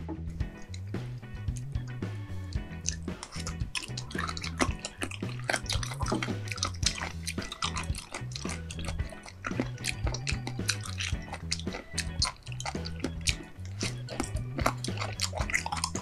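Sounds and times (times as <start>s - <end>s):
wet crunchy chewing: 0.5s - 16.0s.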